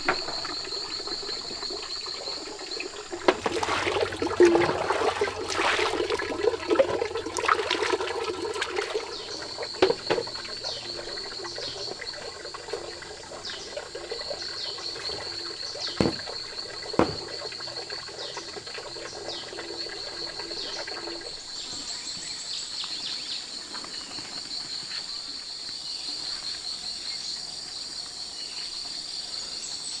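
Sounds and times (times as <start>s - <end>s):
insects trilling: 0.0s - 30.0s
sharp knocks: 15.9s - 16.4s, 17.0s - 17.5s.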